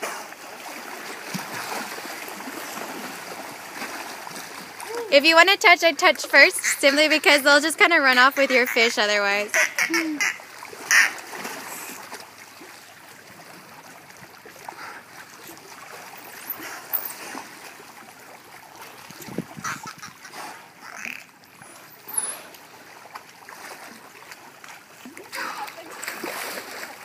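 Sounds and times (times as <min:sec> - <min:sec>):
water splashing and sloshing: 0:00.0 - 0:27.0.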